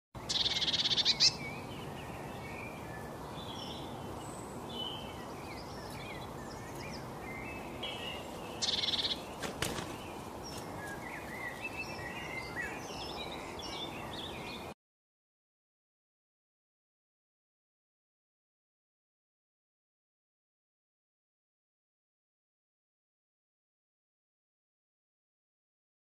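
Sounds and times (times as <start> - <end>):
songbirds chirping: 0.2 - 14.8
steady outdoor hiss: 0.2 - 14.8
buzzy bird trills: 8.6 - 11.6.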